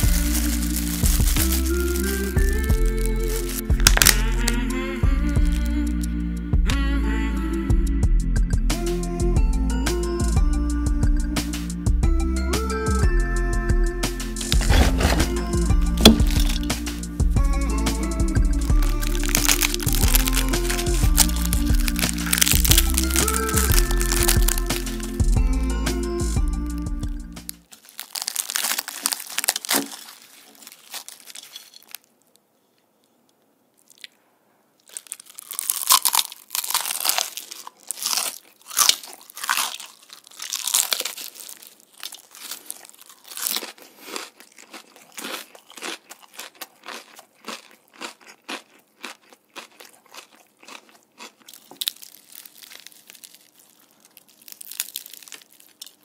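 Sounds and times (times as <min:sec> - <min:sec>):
crunching bites and chewing: 0:00.0 - 0:04.6, 0:05.4 - 0:06.0, 0:14.4 - 0:17.1, 0:17.9 - 0:25.5, 0:27.4 - 0:32.1, 0:34.8 - 0:56.0
fried batter crackling: 0:00.0 - 0:04.6, 0:18.6 - 0:25.4, 0:27.4 - 0:32.0, 0:34.9 - 0:56.0.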